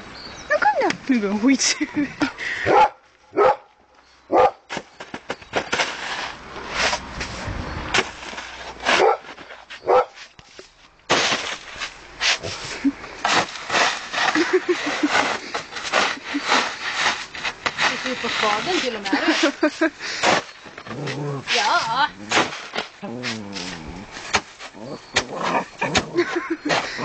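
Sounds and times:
small dog barking: 2.7s - 3.7s, 4.3s - 4.6s, 9.0s - 9.2s, 9.9s - 10.2s
scrabbling in snow: 4.9s - 27.0s.

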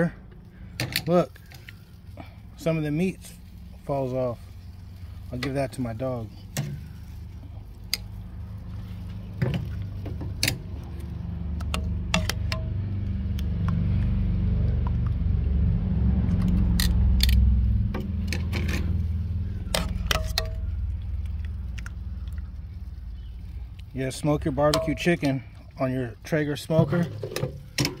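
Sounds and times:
low rumble: 1.8s - 25.2s
utensil clinking on metal: 24.7s - 25.4s.

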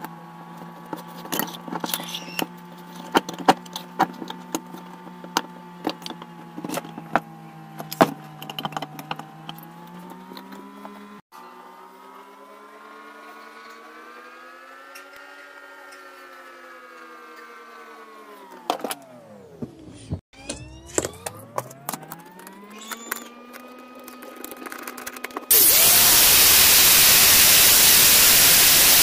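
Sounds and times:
metal parts clicking and knocking: 7.8s - 10.6s
steady hum: 25.5s - 29.0s.

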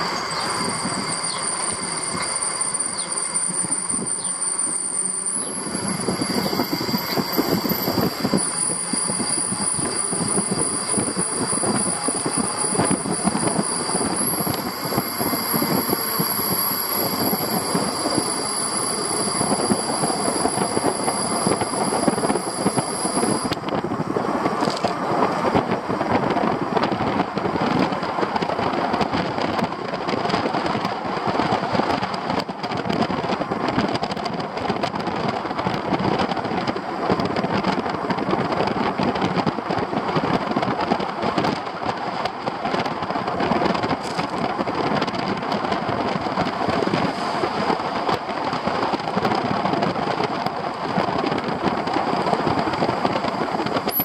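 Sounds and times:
thin high whine: 0.0s - 23.7s, 53.8s - 54.0s
road and engine noise: 0.0s - 54.0s
vehicle rattling: 0.0s - 54.0s
wind buffeting microphone: 0.0s - 54.0s.

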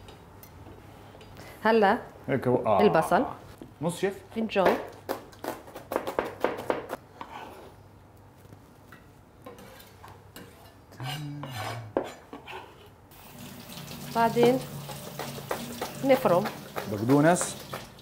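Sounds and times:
knife chopping on cutting board: 14.9s - 18.0s.

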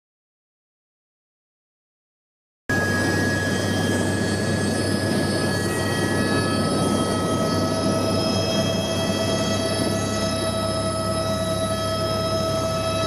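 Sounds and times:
helicopter rotor and engine noise: 2.7s - 13.0s
high whining turbine: 2.7s - 13.0s.

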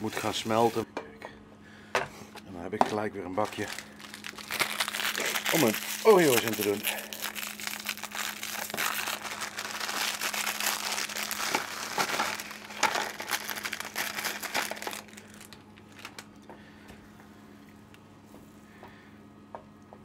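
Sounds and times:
steady low hum: 0.0s - 20.0s
plastic wrapper crinkling: 2.9s - 16.4s.

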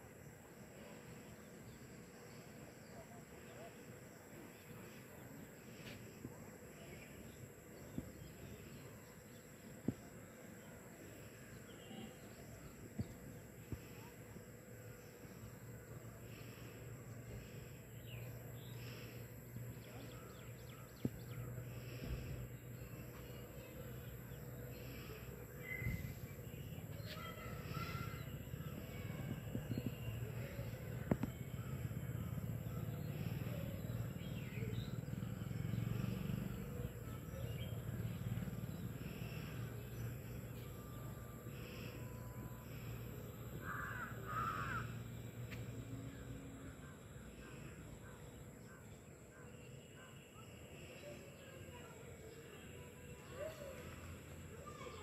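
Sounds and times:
faint background noise: 0.0s - 55.0s
distant bird calls: 6.8s - 46.6s.

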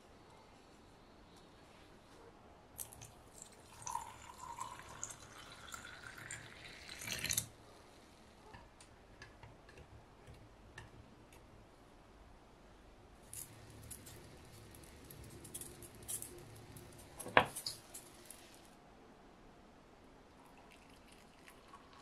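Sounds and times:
water pouring into metal pot: 2.8s - 7.5s, 20.6s - 22.0s.

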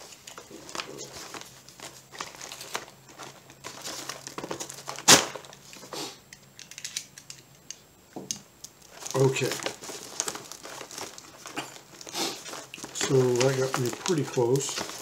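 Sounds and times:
chip bag crinkling: 0.0s - 6.2s, 8.6s - 15.0s
knife slitting plastic bag: 0.5s - 5.6s, 8.9s - 15.0s.

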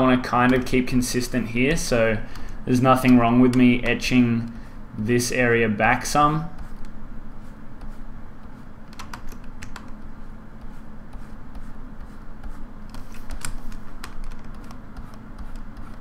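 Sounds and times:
low electrical hum: 0.0s - 16.0s
computer keyboard clicks: 0.4s - 0.7s, 8.9s - 10.0s, 12.9s - 16.0s.

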